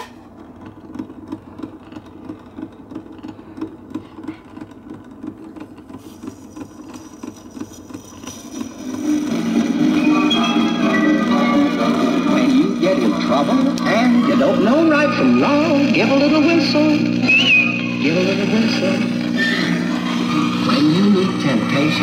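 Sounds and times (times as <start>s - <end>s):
turntable ticking and rumbling: 0.0s - 22.0s
music from record player: 6.5s - 22.0s.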